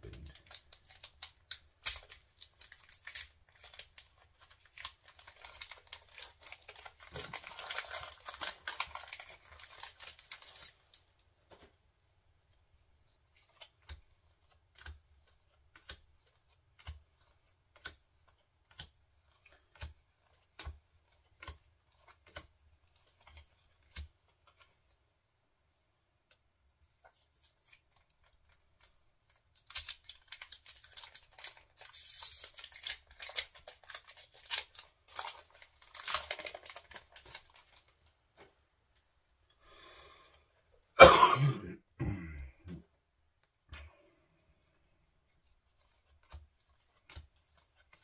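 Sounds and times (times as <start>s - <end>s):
wrapper tearing and crinkling: 0.0s - 11.0s, 29.6s - 37.9s.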